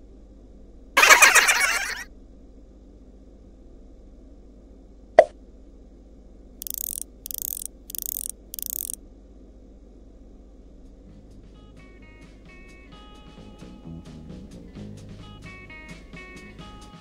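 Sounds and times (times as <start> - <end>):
short high hissing bursts: 6.6 - 9.0.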